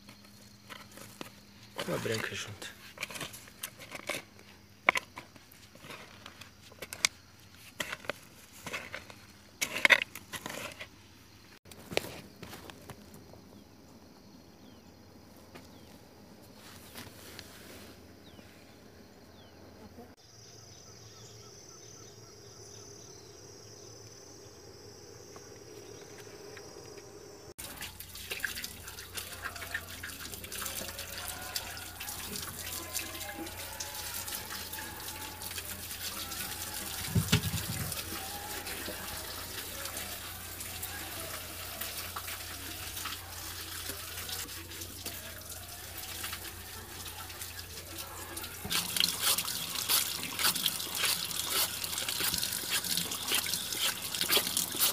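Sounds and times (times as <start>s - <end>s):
potatoes rubbed and splashed: 0.0s - 11.0s, 27.6s - 54.9s
tap water running into washtub: 27.6s - 54.9s.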